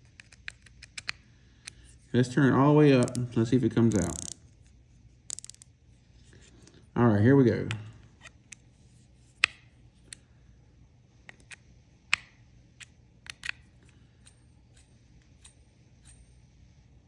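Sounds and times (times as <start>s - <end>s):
fishing reel clicks and taps: 3.9s - 4.4s, 5.3s - 5.6s.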